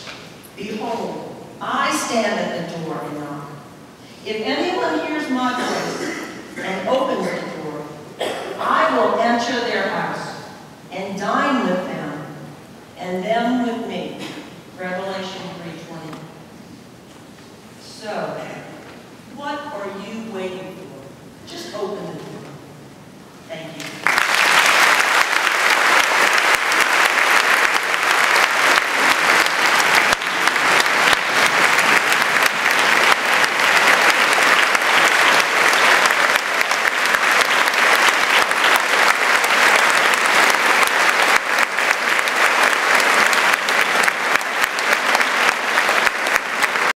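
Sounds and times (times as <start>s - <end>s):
audience applauding: 23.8s - 46.9s.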